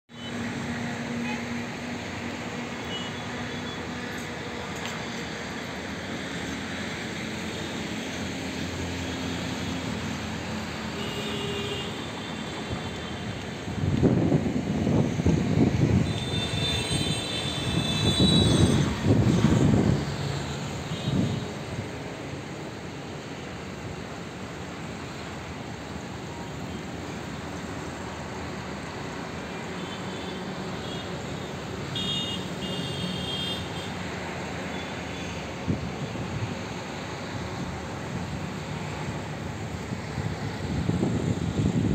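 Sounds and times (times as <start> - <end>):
wind: 0.0 - 41.9
distant road traffic: 0.1 - 41.9
strong wind on microphone: 13.6 - 22.0, 39.7 - 41.9.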